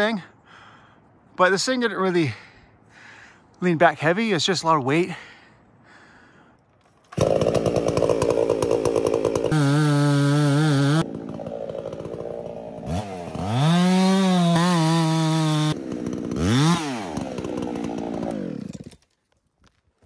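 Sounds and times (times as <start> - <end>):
two-stroke chainsaw revving: 7.0 - 19.0.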